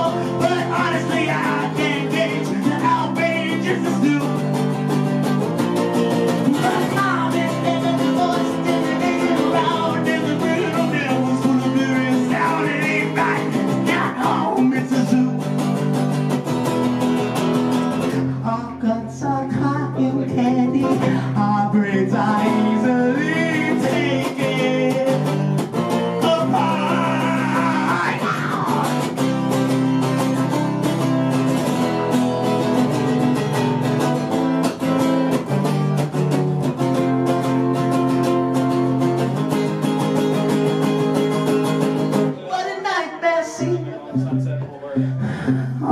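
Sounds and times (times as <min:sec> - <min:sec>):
man singing: 0:00.0 - 0:05.0, 0:06.3 - 0:16.0, 0:18.2 - 0:29.6, 0:41.1 - 0:45.9
acoustic guitar: 0:00.0 - 0:45.9.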